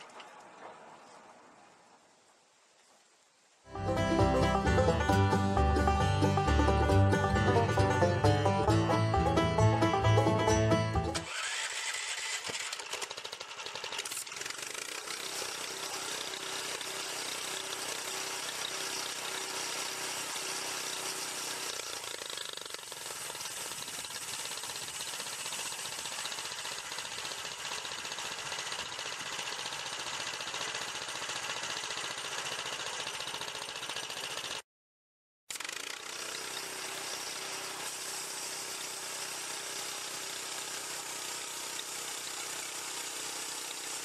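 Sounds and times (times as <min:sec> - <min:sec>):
small gasoline engine running: 0:04.2 - 0:34.6, 0:35.5 - 0:44.0
rattling mechanical clatter: 0:11.1 - 0:17.8.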